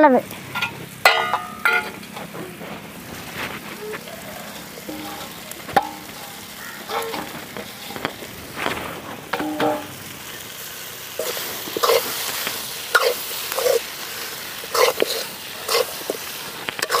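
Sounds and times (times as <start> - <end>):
low sizzle: 0.0 - 17.0
spoon scraping metal pan: 4.6 - 8.2, 9.3 - 10.0, 11.2 - 13.9, 14.7 - 17.0.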